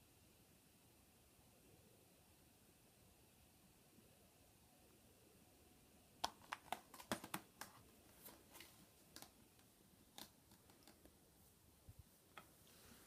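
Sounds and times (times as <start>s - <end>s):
plastic cases clicking and tapping: 6.2s - 7.8s.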